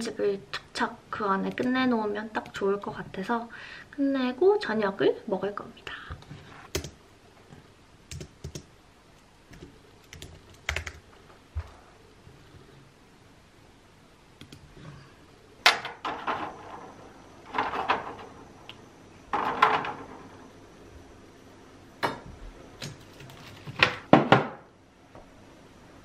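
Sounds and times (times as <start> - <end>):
knocks and clatters in refrigerator: 23.8 - 24.6.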